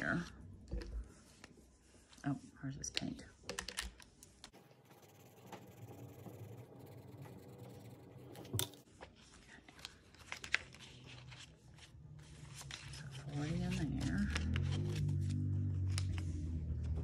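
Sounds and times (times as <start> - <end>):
paper rustling and crinkling: 8.5 - 17.0.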